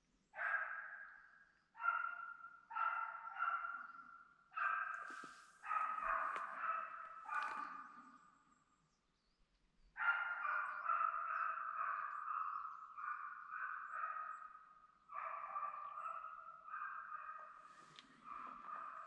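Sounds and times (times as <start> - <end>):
hound baying: 4.6 - 8.0.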